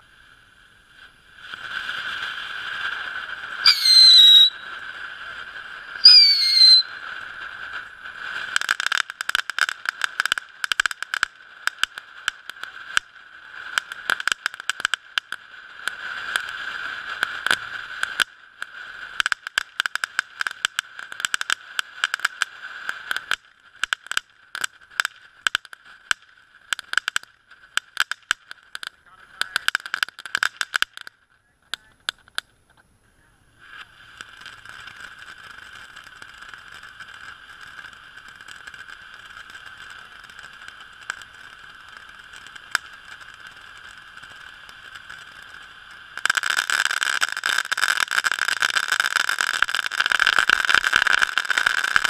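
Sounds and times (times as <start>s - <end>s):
firework fountain hissing: 0.0s - 52.0s
loud short whistles: 3.6s - 4.7s, 6.0s - 7.0s
dense rapid crackling: 23.0s - 32.6s.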